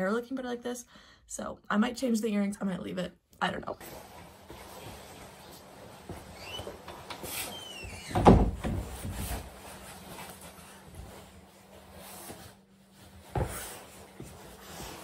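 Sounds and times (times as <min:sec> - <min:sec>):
rustling and handling: 0:03.7 - 0:15.0
door squeak: 0:06.3 - 0:08.6.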